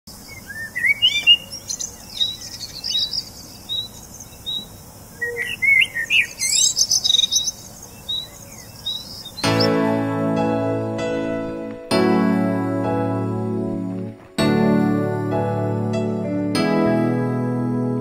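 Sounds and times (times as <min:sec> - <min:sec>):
songbirds singing: 0:00.1 - 0:09.9.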